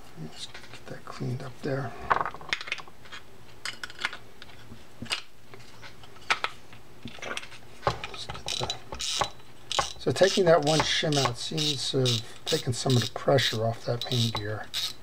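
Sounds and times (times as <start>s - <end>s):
clicks of reel parts being handled: 7.1s - 13.1s
reel gearing rattling: 8.4s - 13.2s.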